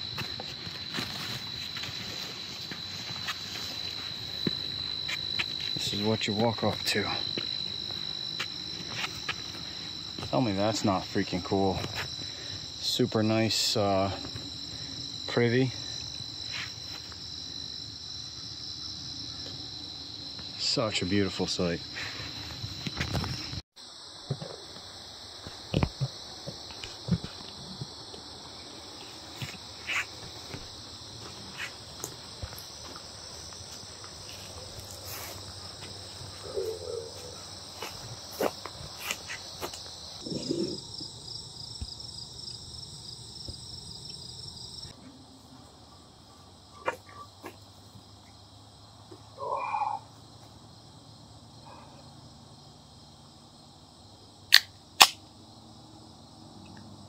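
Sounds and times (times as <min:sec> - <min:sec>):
crickets trilling: 0:00.0 - 0:57.0
sharp click: 0:54.5 - 0:55.2.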